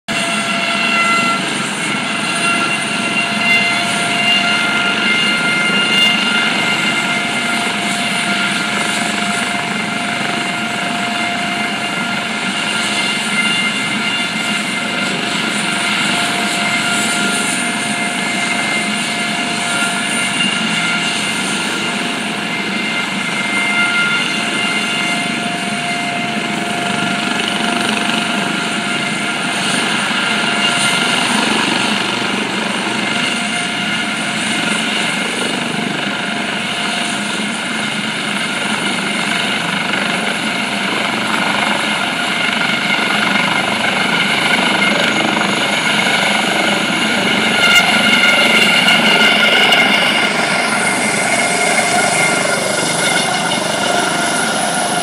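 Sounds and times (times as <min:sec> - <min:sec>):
helicopter engine and rotor drone: 0:00.1 - 0:55.0
high-pitched turbine whine: 0:00.1 - 0:55.0.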